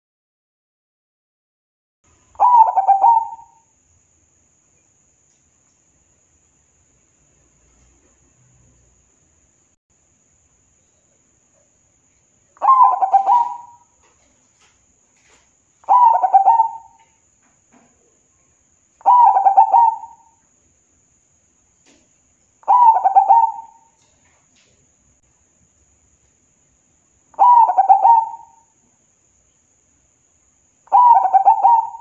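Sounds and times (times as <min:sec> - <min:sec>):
dove cooing: 0:02.4 - 0:03.6, 0:12.6 - 0:14.0, 0:15.8 - 0:17.1, 0:19.0 - 0:20.3, 0:22.6 - 0:23.9, 0:27.4 - 0:28.6, 0:30.9 - 0:32.0.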